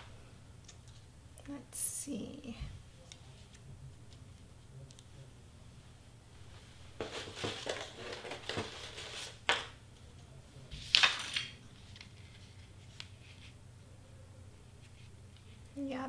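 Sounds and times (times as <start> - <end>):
paper rustling and sliding: 6.5 - 9.7.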